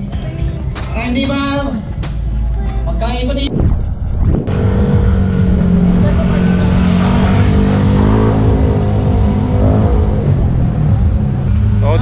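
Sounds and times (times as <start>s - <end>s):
motorcycle engine at low revs: 4.3s - 11.7s.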